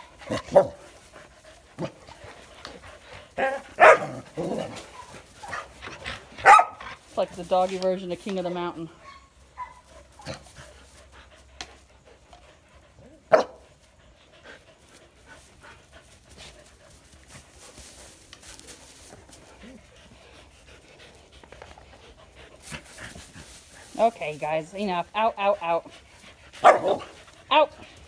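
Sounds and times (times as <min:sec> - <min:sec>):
dogs panting: 0:00.0 - 0:28.0
hay rustling: 0:14.7 - 0:20.9, 0:22.3 - 0:28.0.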